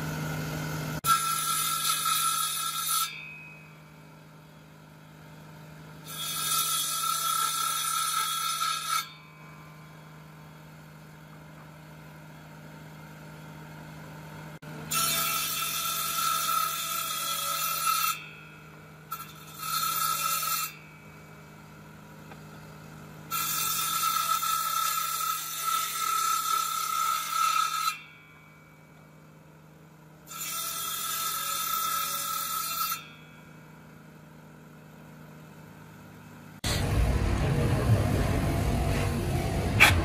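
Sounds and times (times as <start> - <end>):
power tool cutting wood: 0.0 - 3.7, 5.7 - 10.0, 14.6 - 21.2, 23.2 - 28.4, 30.2 - 33.3, 36.6 - 40.0
steady low hum: 33.4 - 40.0.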